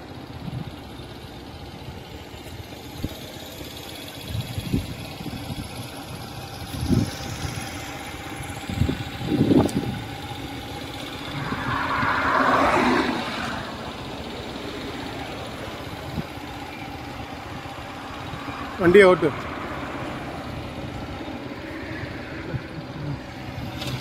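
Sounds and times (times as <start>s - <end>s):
motorcycle engine at speed: 0.0s - 24.0s
car passing close: 7.0s - 24.0s
wind gusts on microphone: 11.2s - 14.0s.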